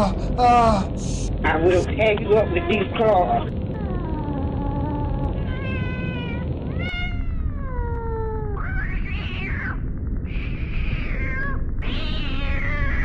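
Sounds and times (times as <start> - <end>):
cat-like meowing and yowling: 3.7 - 13.0.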